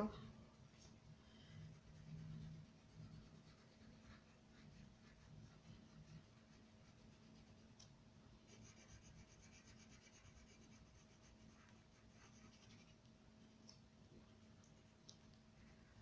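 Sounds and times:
crayon rubbing on paper: 1.6s - 7.7s, 8.5s - 13.0s.

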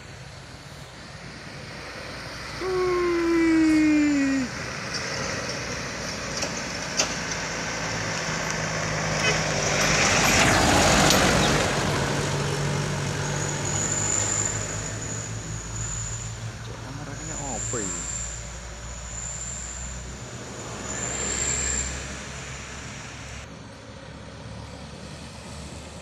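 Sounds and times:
truck horn blast: 9.2s - 9.6s.

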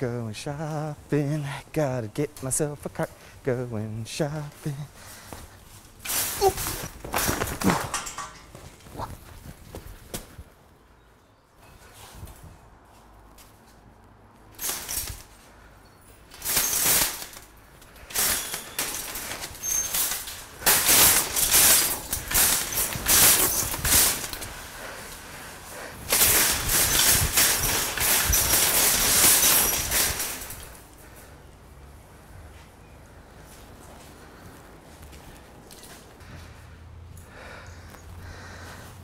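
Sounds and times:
metal shopping carts rattling: 5.8s - 9.1s, 14.5s - 15.5s, 16.1s - 31.2s.

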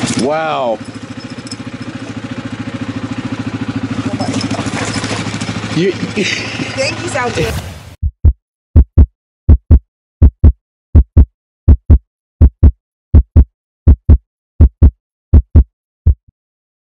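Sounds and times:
heartbeat thumps: 8.0s - 16.3s.

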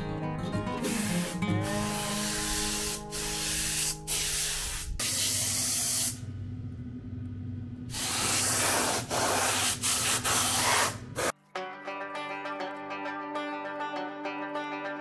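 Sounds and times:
spray gun hissing: 0.8s - 6.2s, 7.9s - 11.3s.

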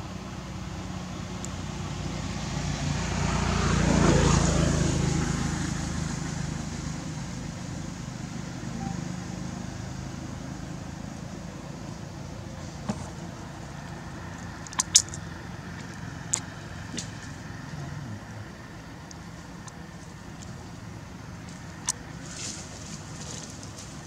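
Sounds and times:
low background rumble: 6.7s - 24.0s
sharp clicks: 14.6s - 15.2s.

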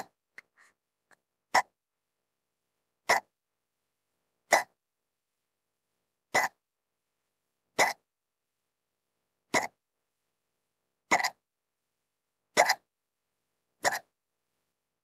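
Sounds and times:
woman hiccuping: 4.5s - 4.8s.

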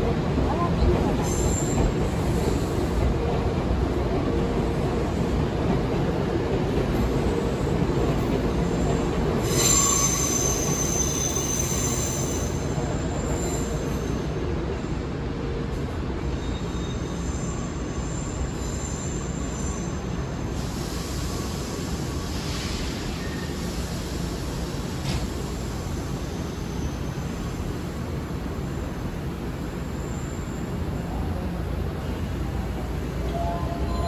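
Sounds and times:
train rumble: 0.0s - 16.4s
train wheels squealing: 1.2s - 2.8s, 8.7s - 14.4s, 16.2s - 27.8s, 29.6s - 31.2s, 33.2s - 34.0s.

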